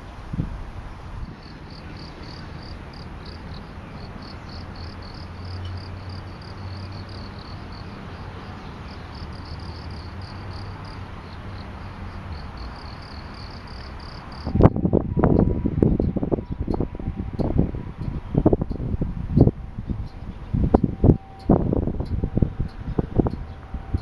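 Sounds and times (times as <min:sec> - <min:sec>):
crickets chirping: 0:01.2 - 0:24.0
low steady rumble: 0:14.4 - 0:24.0.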